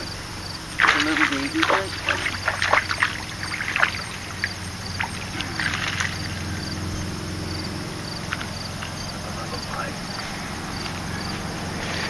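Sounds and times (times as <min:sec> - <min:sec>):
fish splashing in water: 0:00.0 - 0:09.9
crickets chirping: 0:00.0 - 0:12.0.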